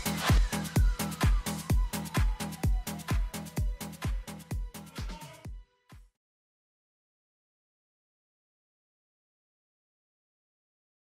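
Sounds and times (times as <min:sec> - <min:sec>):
electronic dance music: 0:00.0 - 0:06.0
steady kick drum: 0:00.0 - 0:06.1.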